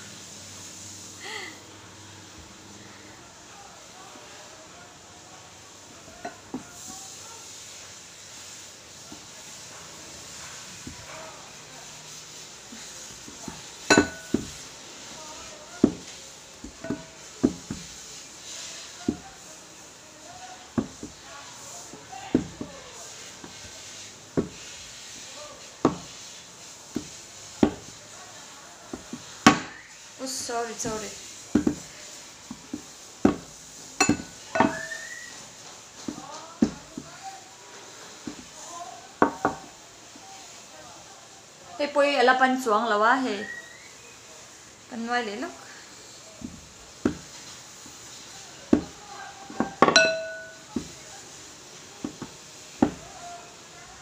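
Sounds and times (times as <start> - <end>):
rolling pin rolling dough: 5.9 - 40.5, 46.1 - 54.0
rolling pin knocking on glass: 12.7 - 14.6, 15.8 - 18.0, 19.0 - 19.4, 20.8 - 21.2, 22.2 - 22.8, 24.4 - 24.7, 25.8 - 26.2, 26.9 - 28.0, 28.9 - 29.8, 30.8 - 31.9, 32.5 - 35.1, 36.1 - 37.2, 39.2 - 39.7, 46.4 - 47.4, 48.7 - 51.0, 52.0 - 53.2
glassy clink: 13.9 - 14.6, 34.0 - 35.2, 49.6 - 50.9
wooden knocks: 15.8 - 17.9, 22.3 - 22.8, 52.0 - 53.1.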